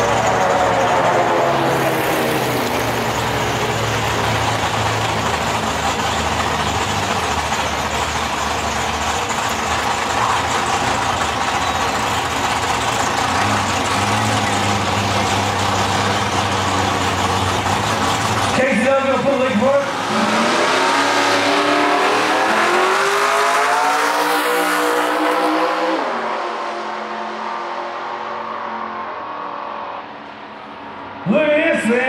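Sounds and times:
race car engines idling: 0.0 - 23.8.

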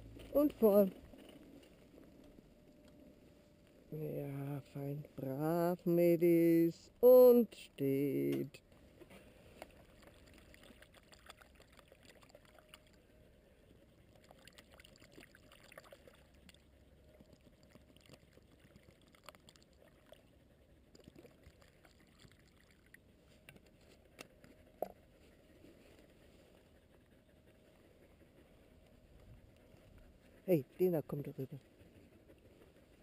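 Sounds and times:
water trickling into bowl: 9.8 - 13.0, 14.0 - 23.1.

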